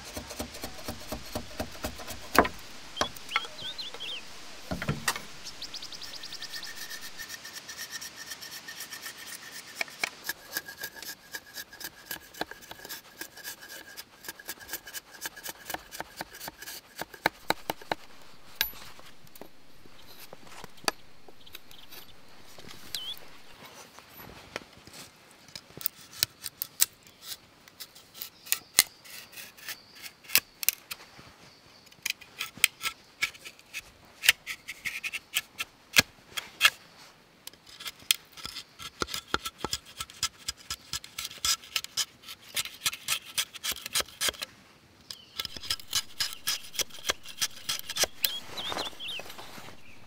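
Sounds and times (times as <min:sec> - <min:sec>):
hand tool shaving wood: 0:00.0 - 0:23.6, 0:37.8 - 0:44.5, 0:45.4 - 0:50.0.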